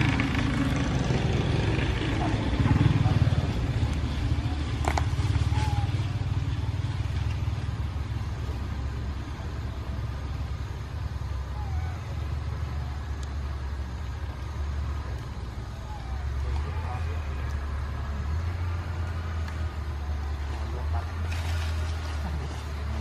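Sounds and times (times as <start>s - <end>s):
engine idling: 0.0s - 23.0s.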